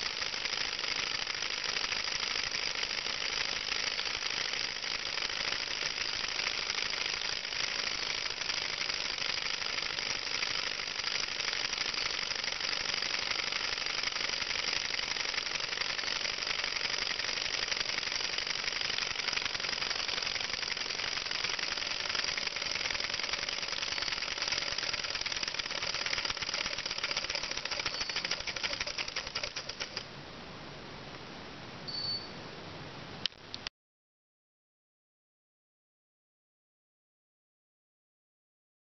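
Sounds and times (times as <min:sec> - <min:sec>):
small engine mechanical clatter: 0:00.0 - 0:30.1.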